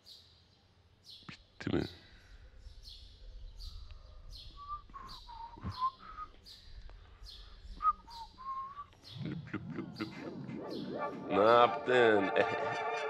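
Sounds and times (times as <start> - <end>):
small bird chirping: 0.0 - 11.7
low wavering whistled notes: 3.2 - 13.0.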